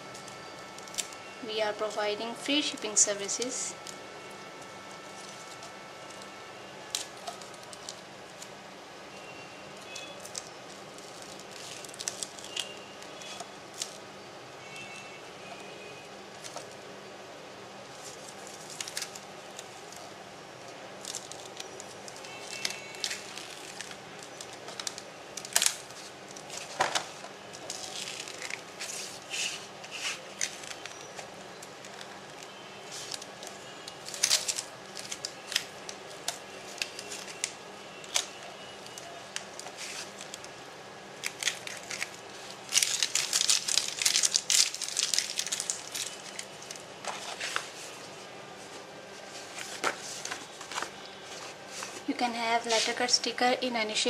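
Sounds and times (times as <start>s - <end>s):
sticker film crackling: 0.0s - 8.6s, 9.8s - 14.0s, 17.9s - 20.2s, 21.0s - 40.6s, 41.2s - 48.0s.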